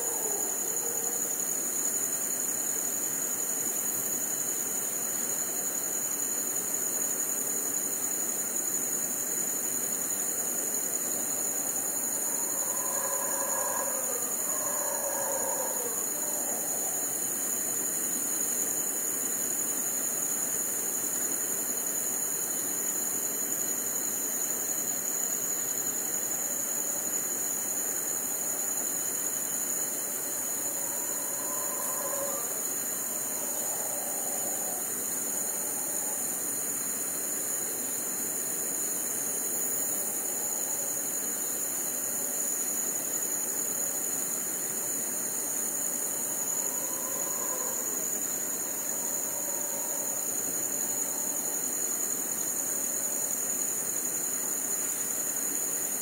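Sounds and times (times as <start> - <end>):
constant hiss: 0.0 - 56.0
crickets chirring: 0.0 - 56.0
faint pitched calls: 11.6 - 17.1, 30.3 - 36.2.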